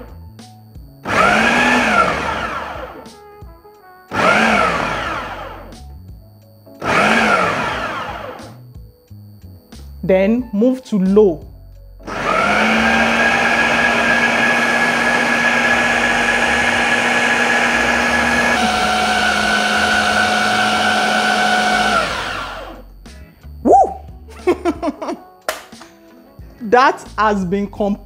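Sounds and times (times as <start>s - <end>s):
food processor motor mincing meat: 1.0s - 3.1s, 4.1s - 5.7s, 6.8s - 8.6s, 12.0s - 22.8s.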